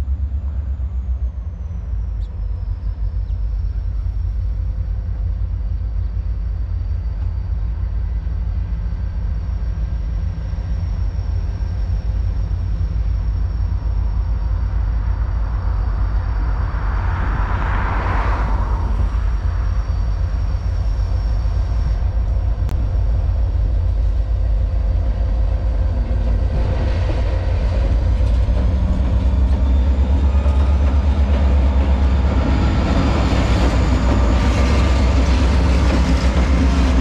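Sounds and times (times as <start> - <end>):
distant freight train rumble: 0.0 - 37.0
rushing noise: 13.0 - 37.0.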